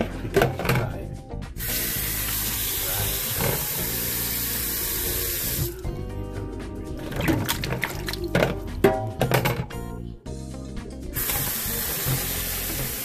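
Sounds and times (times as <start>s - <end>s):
tap running into sink: 2.3s - 3.9s, 11.2s - 13.0s.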